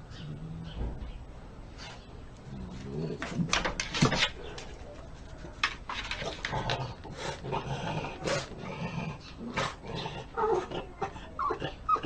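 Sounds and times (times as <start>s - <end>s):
dog claws scraping wooden gate: 3.1s - 4.8s.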